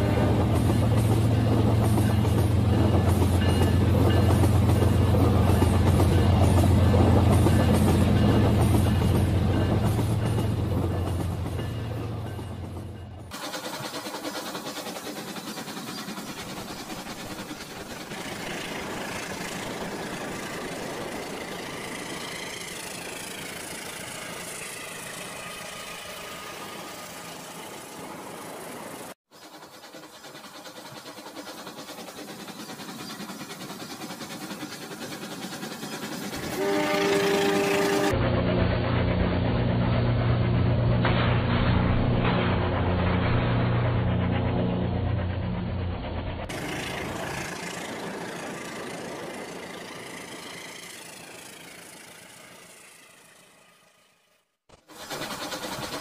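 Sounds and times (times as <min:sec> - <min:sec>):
toy train ticking on track: 0:13.3 - 0:25.6, 0:29.3 - 0:38.1, 0:54.8 - 0:56.0
toy train running on plastic track: 0:29.3 - 0:38.1, 0:46.5 - 0:54.1, 0:54.7 - 0:56.0
steady horn tone: 0:36.6 - 0:38.2.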